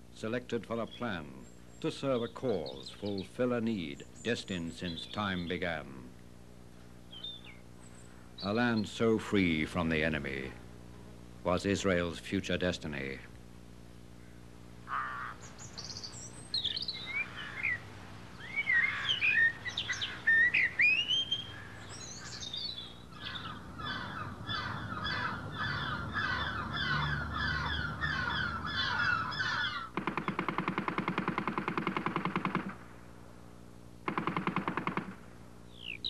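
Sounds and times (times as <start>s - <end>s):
songbirds singing: 0.0s - 10.8s, 14.0s - 30.5s, 35.6s - 36.0s
machine gun firing: 29.9s - 33.0s, 34.0s - 35.3s.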